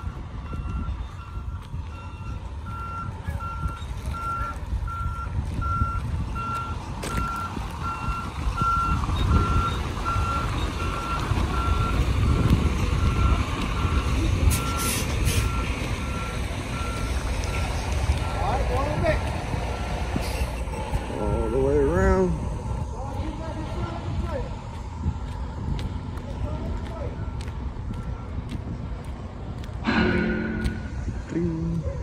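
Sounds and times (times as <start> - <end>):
reversing truck backup beeps: 0.0 - 18.8, 19.6 - 22.1, 27.1 - 28.8
low steady rumble: 29.8 - 31.9.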